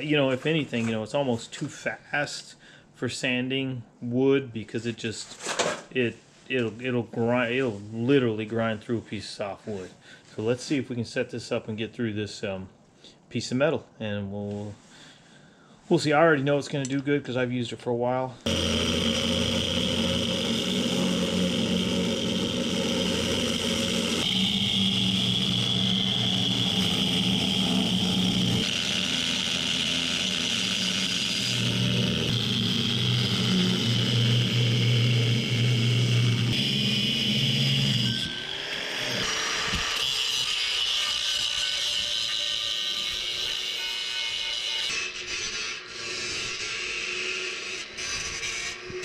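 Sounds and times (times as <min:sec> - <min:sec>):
angle grinder cutting steel: 0:18.4 - 0:49.0.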